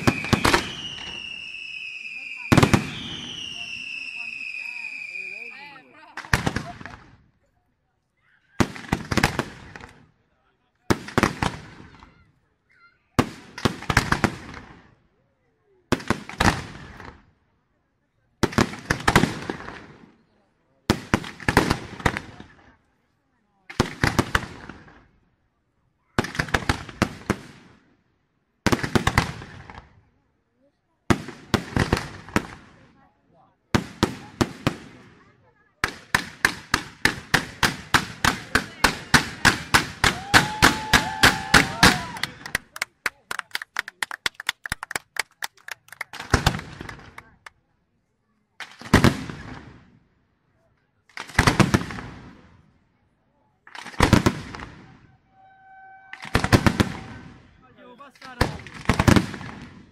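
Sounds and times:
firework shells bursting: 0.0 - 5.0, 35.8 - 43.0, 55.4 - 57.5
steady whistling tone: 0.0 - 5.8
fireworks bangs: 0.0 - 7.2, 8.6 - 10.1, 10.9 - 12.2, 13.2 - 15.0, 15.9 - 17.2, 18.4 - 20.2, 20.9 - 22.8, 23.7 - 25.1, 26.1 - 28.0, 28.6 - 30.0, 31.1 - 33.0, 33.7 - 43.6, 44.2 - 47.5, 48.6 - 50.0, 51.1 - 52.7, 53.6 - 59.9.

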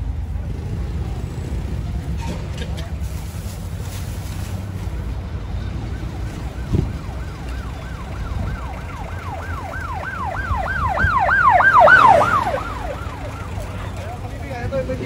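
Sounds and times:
low traffic rumble: 0.0 - 15.0
siren wailing: 5.8 - 14.2.

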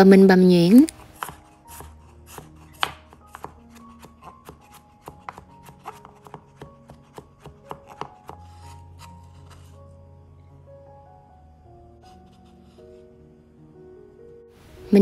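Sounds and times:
knife chopping on cutting board: 1.0 - 8.8.

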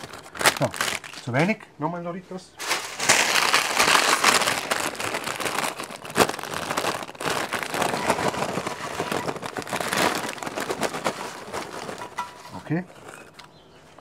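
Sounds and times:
chip bag crinkling: 0.0 - 1.6, 2.6 - 14.0
chips poured into a dish: 7.0 - 12.6.

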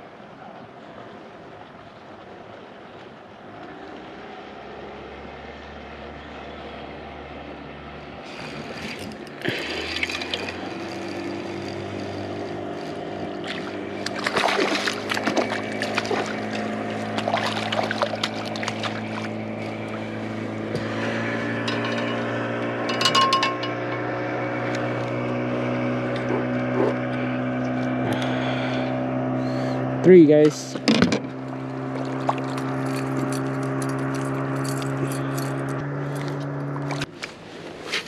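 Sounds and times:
water splashing: 8.2 - 23.0, 31.3 - 34.5
electric motor humming: 8.2 - 30.1.

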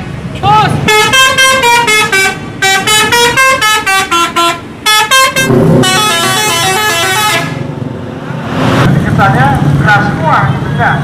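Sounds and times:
low rumble of engine and traffic: 0.0 - 11.0
bus musical air horn melody: 0.8 - 7.6.

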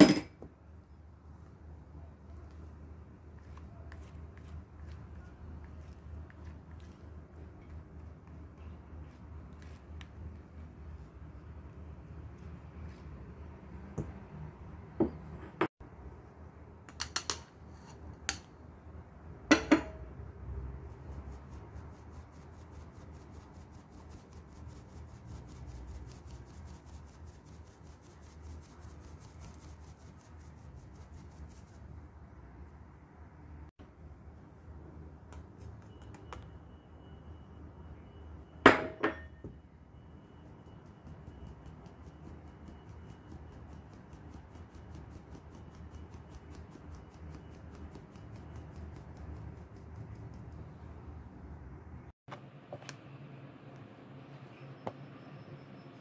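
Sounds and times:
kitchenware knocking on metal bowl: 19.5 - 20.0.

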